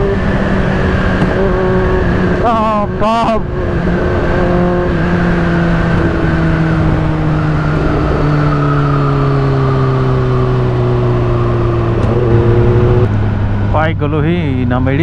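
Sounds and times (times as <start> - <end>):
motorcycle engine running: 0.0 - 8.8.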